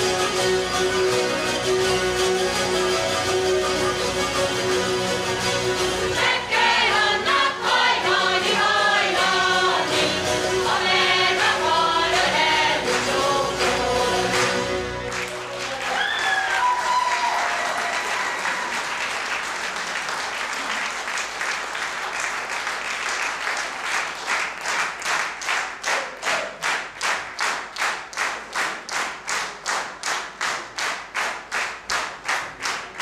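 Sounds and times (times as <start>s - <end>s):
rhythmic clapping in unison: 0.0s - 33.0s
audience applause: 10.8s - 33.0s.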